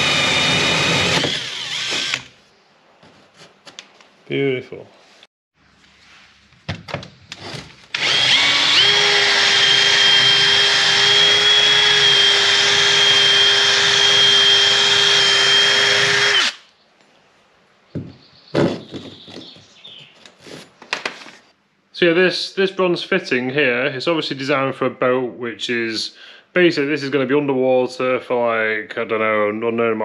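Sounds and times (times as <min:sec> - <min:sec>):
cordless drill drilling: 0:00.0 - 0:02.3, 0:07.9 - 0:16.7.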